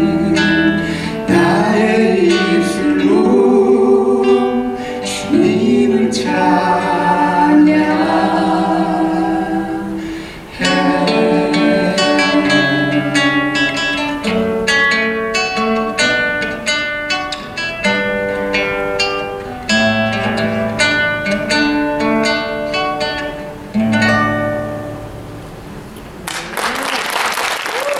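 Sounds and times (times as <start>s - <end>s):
acoustic guitar playing: 0.0s - 26.3s.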